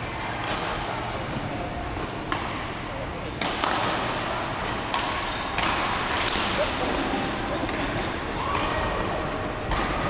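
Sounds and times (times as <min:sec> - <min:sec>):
rackets striking shuttlecock: 0:03.3 - 0:10.0.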